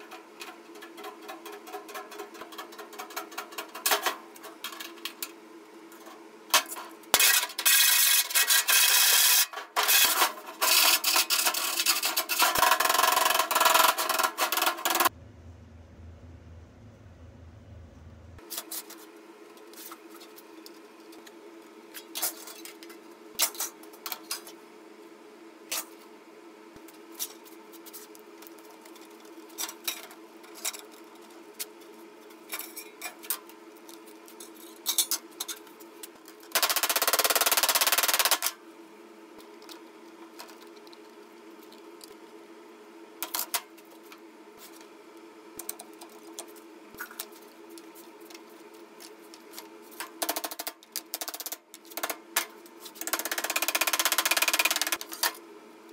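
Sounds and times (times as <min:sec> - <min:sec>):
steady low hum: 0:15.0 - 0:18.4.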